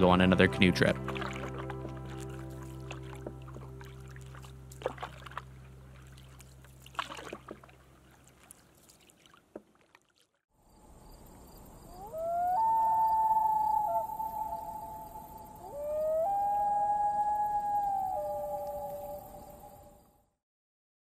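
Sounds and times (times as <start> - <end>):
background music: 0.0 - 6.0
paddle strokes in water: 0.7 - 10.4
long animal wail: 12.0 - 19.7.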